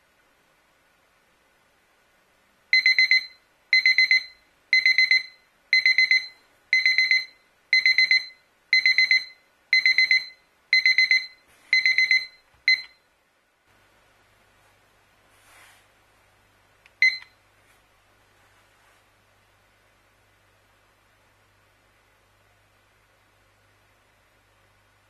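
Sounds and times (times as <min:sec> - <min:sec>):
kitchen timer alarm beeping: 0:02.7 - 0:13.0, 0:17.0 - 0:17.4.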